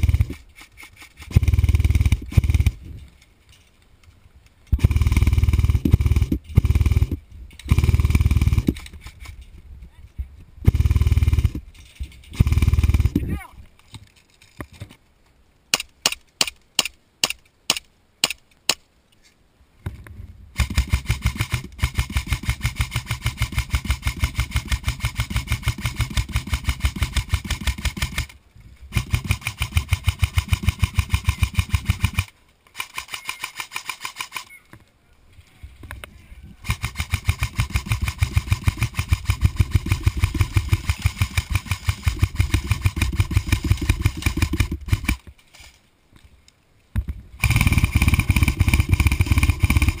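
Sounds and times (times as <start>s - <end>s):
airsoft rifle full-auto bursts: 0.0s - 2.8s, 4.8s - 9.2s, 10.7s - 11.6s, 12.4s - 13.2s, 20.6s - 28.3s, 28.9s - 34.5s, 36.6s - 45.2s, 47.4s - 50.0s.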